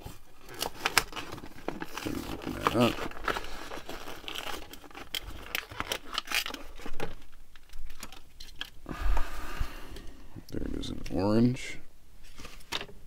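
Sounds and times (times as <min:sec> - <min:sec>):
plastic crinkling and crackling: 0:00.0 - 0:08.8
plastic blister pack tearing: 0:00.4 - 0:08.8.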